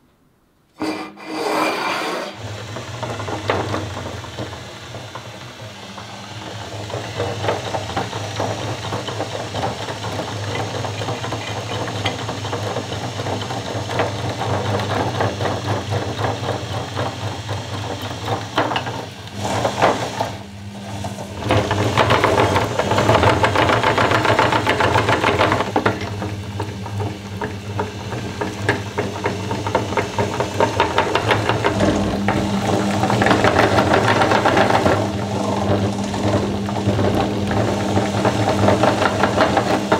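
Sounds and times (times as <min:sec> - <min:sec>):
meat grinder motor humming: 0:02.3 - 0:39.9
crackling rattle of grinding: 0:21.0 - 0:39.9.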